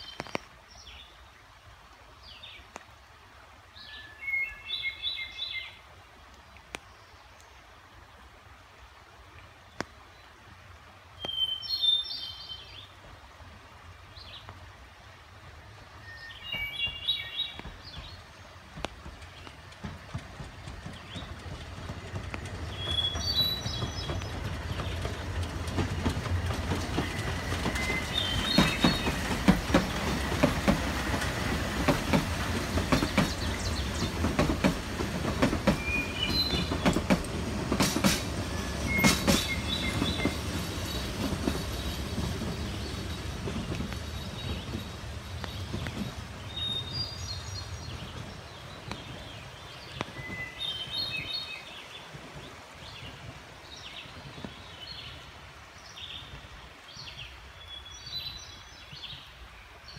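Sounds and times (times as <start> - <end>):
steam train passing: 15.4 - 55.5
birds chirping: 16.1 - 52.2
wheels clicking over rail joints: 16.6 - 51.3.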